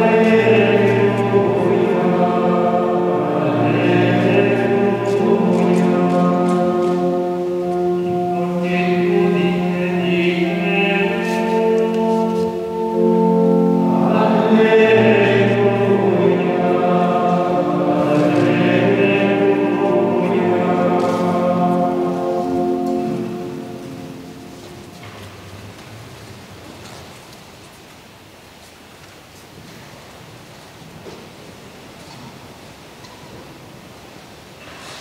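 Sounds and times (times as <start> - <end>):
choir of monks chanting: 0.0 - 24.6.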